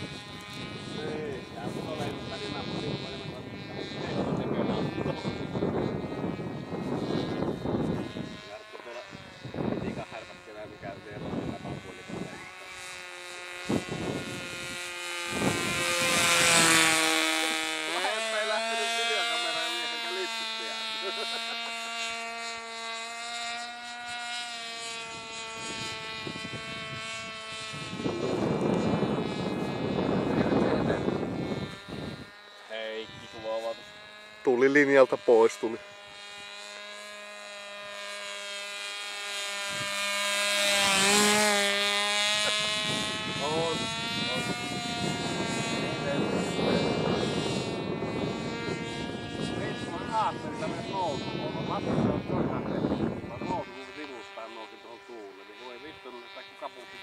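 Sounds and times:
model plane motor whining: 0.0s - 57.0s.

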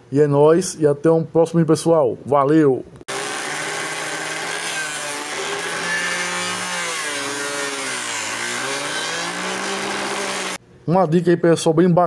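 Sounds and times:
electric motor humming: 3.1s - 10.6s.

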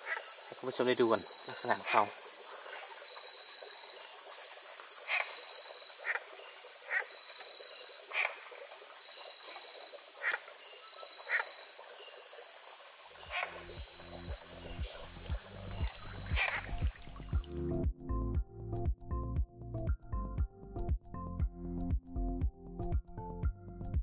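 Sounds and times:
high insect trill: 0.0s - 17.7s
frogs calling: 0.0s - 17.8s
music: 13.3s - 24.0s.

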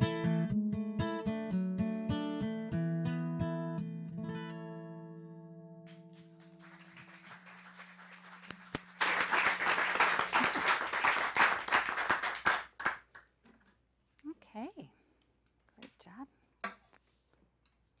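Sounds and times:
audience applause: 5.9s - 13.2s.

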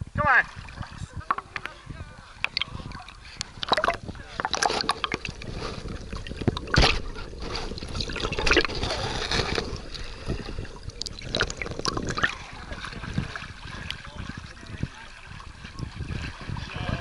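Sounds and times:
water sloshing and gurgling: 0.3s - 17.0s
dog paddling splashes: 10.9s - 17.0s.

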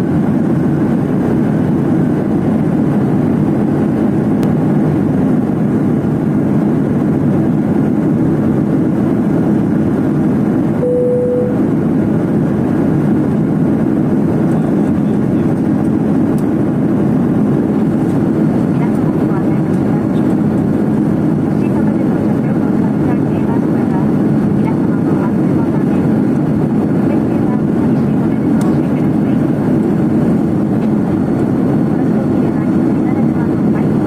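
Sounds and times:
jet airliner cabin engine rush: 0.0s - 34.0s
short beep: 10.8s - 11.7s.

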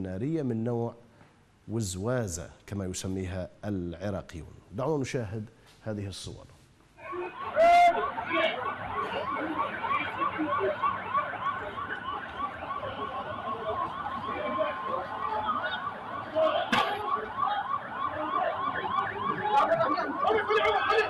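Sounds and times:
vehicle siren yelping: 7.0s - 21.0s.

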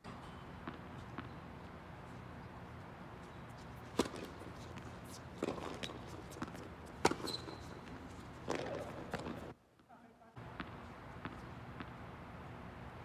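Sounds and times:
tennis ball hit by racket: 3.9s - 9.5s.

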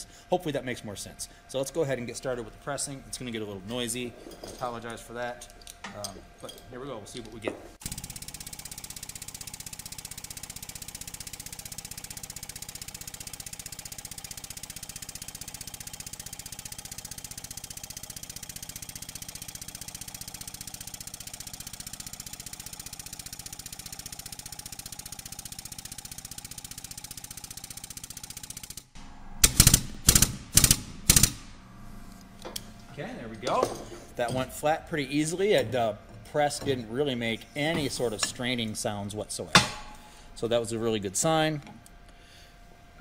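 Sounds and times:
sharp metal clanks: 39.5s - 40.1s.

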